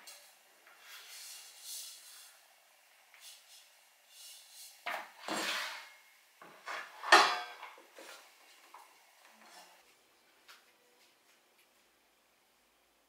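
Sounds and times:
basket scraping and rattling: 5.2s - 6.0s.

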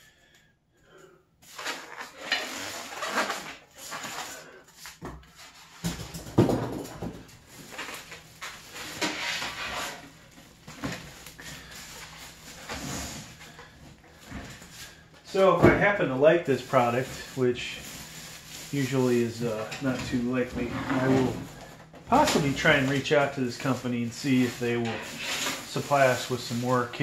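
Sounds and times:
styrofoam rubbing: 1.4s - 4.6s, 7.5s - 10.3s, 16.5s - 27.0s
plastic wrap crinkling: 7.3s - 27.0s.

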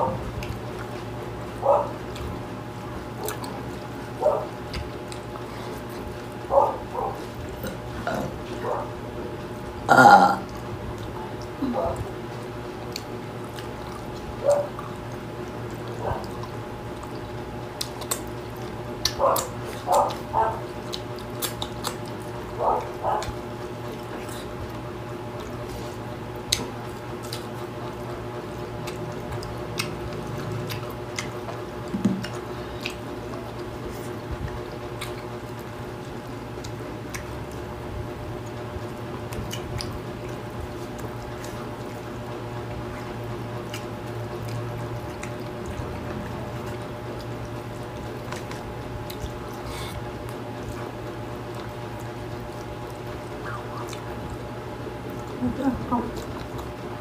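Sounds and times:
steady low hum: 0.0s - 57.0s
wet chewing: 0.0s - 57.0s
lip smacks: 3.1s - 8.9s, 12.8s - 27.7s, 28.8s - 35.8s, 36.6s - 37.6s, 39.2s - 42.3s, 43.0s - 54.4s
mouth clicks: 20.9s - 22.0s.

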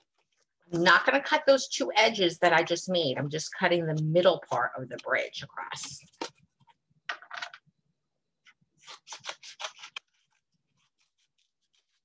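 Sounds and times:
scissors snipping paper: 8.8s - 12.0s.

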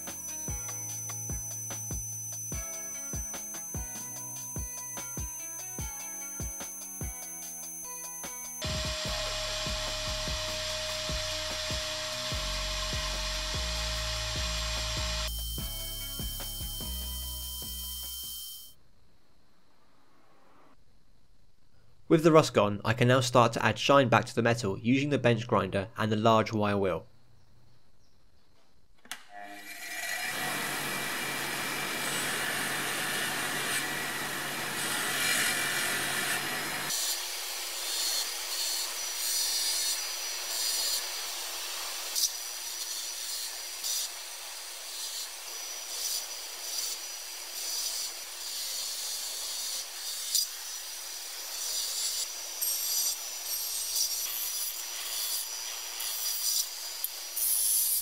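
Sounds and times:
bench grinder running: 8.6s - 18.2s, 29.4s - 44.1s.

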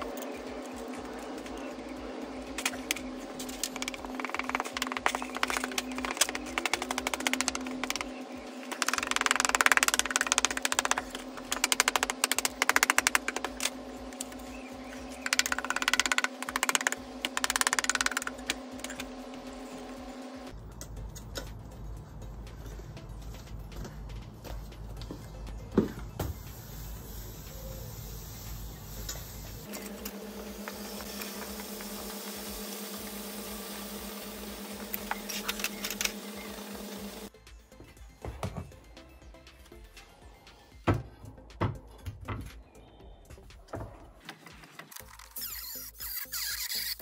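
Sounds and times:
low hum: 0.0s - 37.3s
boiling water and steam hissing: 26.2s - 37.3s.

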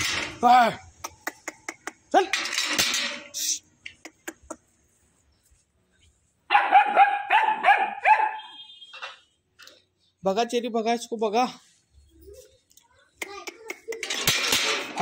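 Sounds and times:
puppy yapping: 6.5s - 8.5s.

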